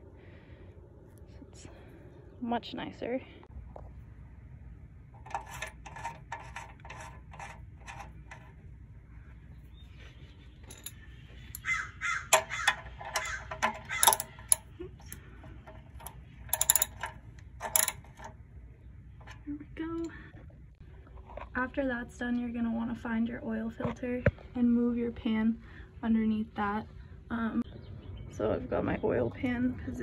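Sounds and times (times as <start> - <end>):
ratchet wrench clicking: 12.3 - 15.2, 16.0 - 18.3.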